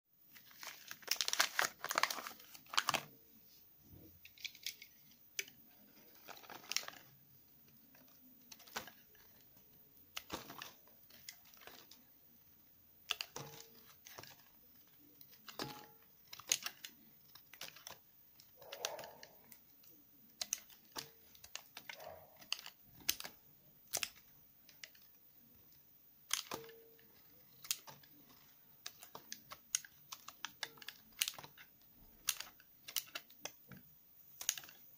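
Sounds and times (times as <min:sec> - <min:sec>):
wrapper crinkling and tearing: 0:00.3 - 0:03.1, 0:05.9 - 0:07.2, 0:07.9 - 0:09.4.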